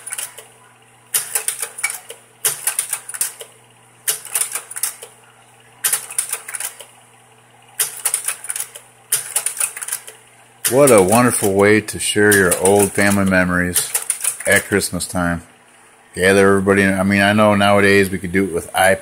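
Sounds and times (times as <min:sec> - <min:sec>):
slide projector clicking: 0:00.0 - 0:05.2, 0:05.8 - 0:07.0, 0:07.8 - 0:11.7, 0:12.3 - 0:14.8
projector fan hum: 0:00.0 - 0:19.0.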